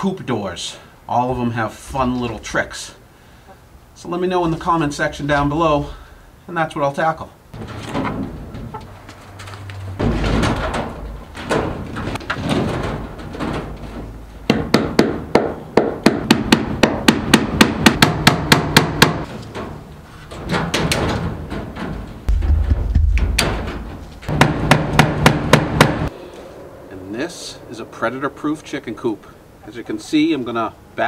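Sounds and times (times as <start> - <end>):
wire mesh handling noise: 7.6 - 14.5, 19.2 - 24.7.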